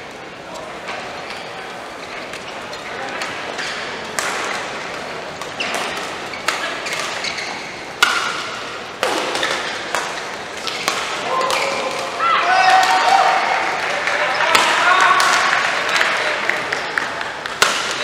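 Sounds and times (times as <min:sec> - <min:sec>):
sports hall noise: 0:00.0 - 0:18.0
rackets hitting shuttlecocks: 0:03.1 - 0:18.0
shoes squeaking on court: 0:04.8 - 0:07.9.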